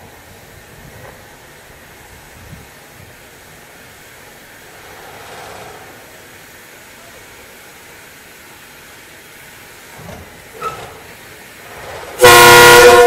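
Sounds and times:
electric locomotive rumbling: 0.0 - 13.0.

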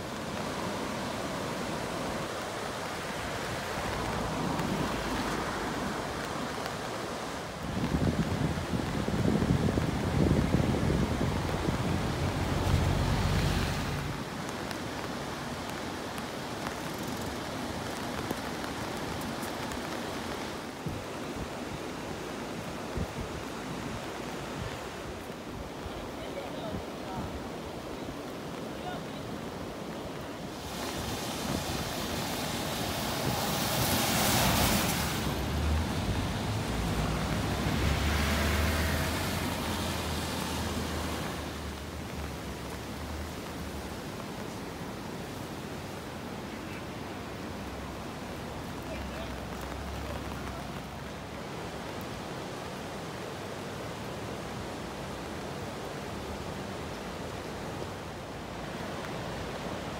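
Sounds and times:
wind rumbling on microphone: 0.0 - 46.4
flowing river water: 0.0 - 59.9
rain hiss: 0.0 - 59.9
vehicle passing: 33.3 - 41.4.

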